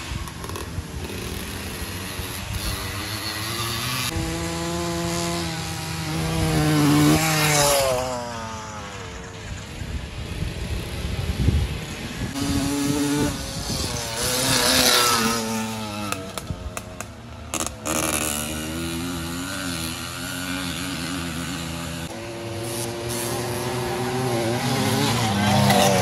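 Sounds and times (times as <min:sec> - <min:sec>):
two-stroke moped engines droning: 0:00.0 - 0:26.0.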